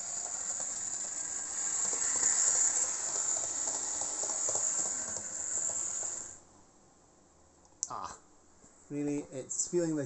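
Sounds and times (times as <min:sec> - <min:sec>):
electric motor hiss: 0:00.0 - 0:06.4
wheels clicking on rails: 0:00.0 - 0:06.4.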